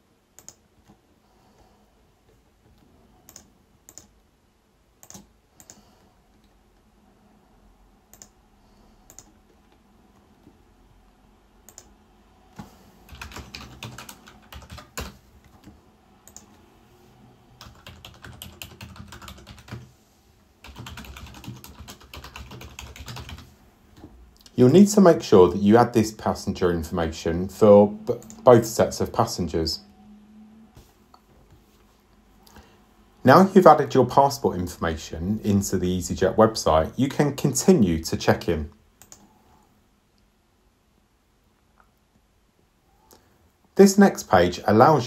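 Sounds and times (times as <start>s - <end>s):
mouse clicks: 0.4s - 0.6s, 3.3s - 4.1s, 8.1s - 8.4s, 9.1s - 9.3s, 11.7s - 11.9s, 16.2s - 16.6s
typing on computer keyboard: 0.4s - 1.0s, 3.3s - 4.2s, 5.0s - 5.8s, 8.1s - 8.4s, 9.1s - 9.3s, 13.1s - 15.6s, 17.6s - 19.9s, 20.6s - 23.5s.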